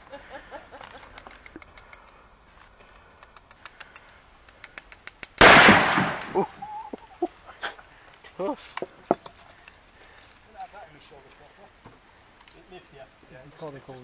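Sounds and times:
rifle shot: 5.4s - 6.6s.

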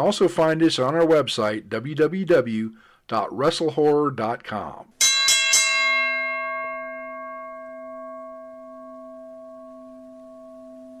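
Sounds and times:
deep bell ringing: 5.0s - 11.0s.

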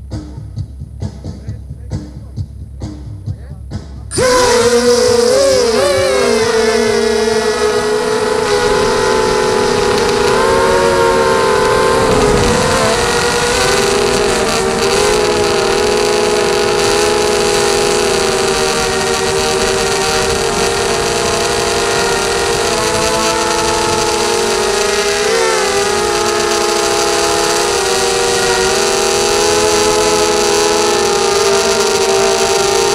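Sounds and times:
quadcopter motors whining: 4.1s - 32.9s.

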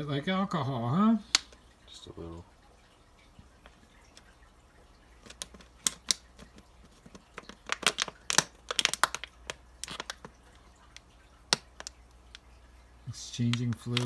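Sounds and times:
plastic bottles crackling: 5.1s - 12.5s, 13.1s - 14.0s.

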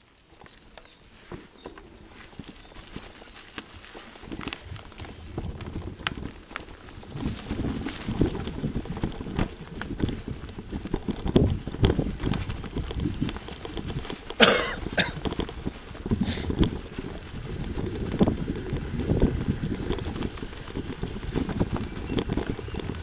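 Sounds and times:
bicycle rumbling on dirt trail: 0.0s - 23.0s
bike knocks and rattles: 0.2s - 23.0s.

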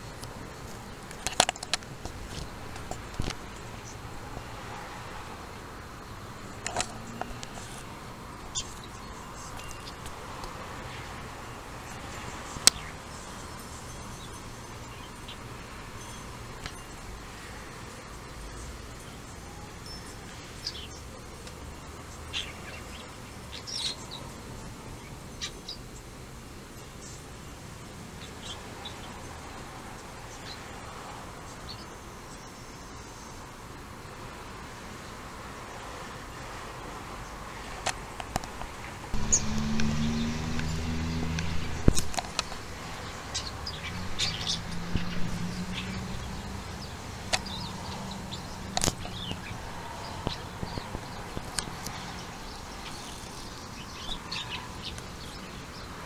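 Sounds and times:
low background noise: 0.0s - 56.0s
starling singing: 39.2s - 55.0s.

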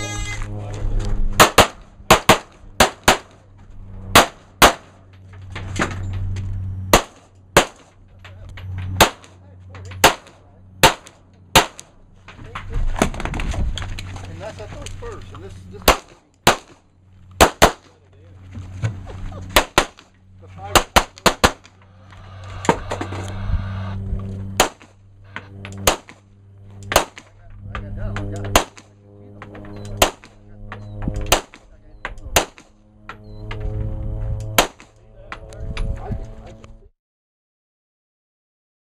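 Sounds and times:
handgun shots: 1.4s - 3.4s, 9.0s - 9.4s, 10.0s - 11.9s, 15.8s - 16.8s, 17.4s - 17.9s, 19.6s - 20.0s, 20.7s - 21.7s, 24.6s - 24.9s, 25.7s - 26.2s, 26.8s - 27.3s, 28.4s - 28.9s, 29.8s - 30.3s, 31.2s - 31.7s, 32.3s - 32.7s, 34.6s - 34.9s.

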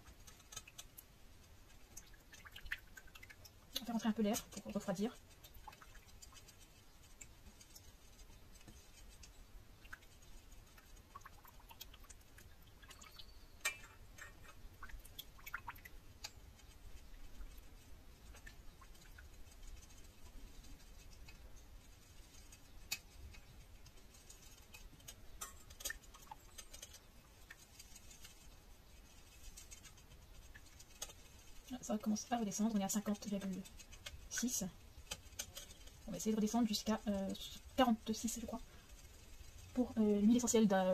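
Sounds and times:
spatula clicking on metal: 12.9s - 15.3s.

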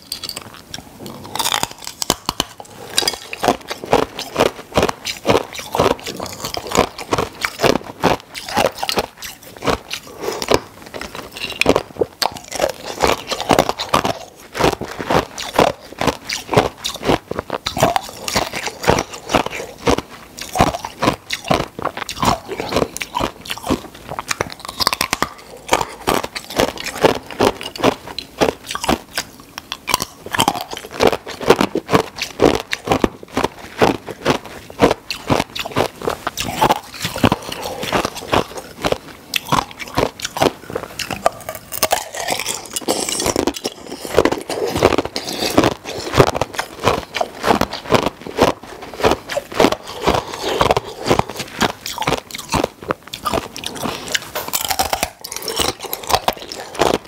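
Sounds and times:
ice crunching between teeth: 0.0s - 57.0s.

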